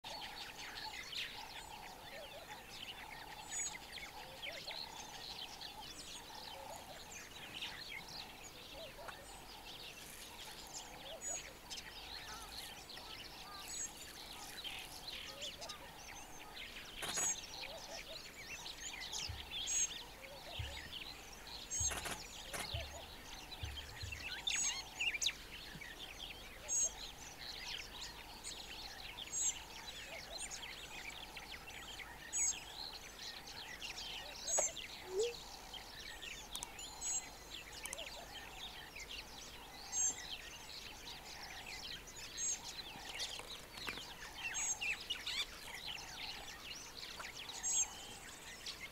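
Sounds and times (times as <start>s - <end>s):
birds chirping: 0.0s - 48.9s.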